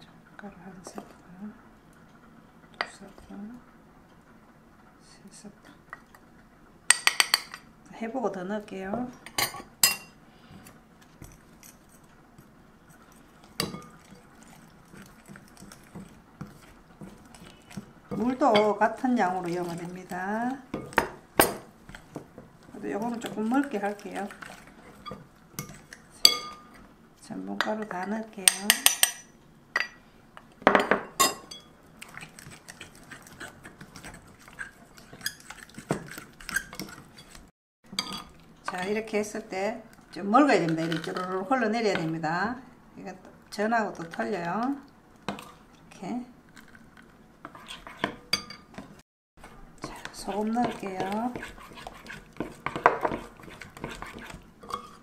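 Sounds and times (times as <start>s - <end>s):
utensil stirring batter in glass bowl: 11.0s - 26.9s, 31.4s - 42.2s, 46.5s - 55.0s
utensil clinking glass bowl: 23.5s - 26.8s.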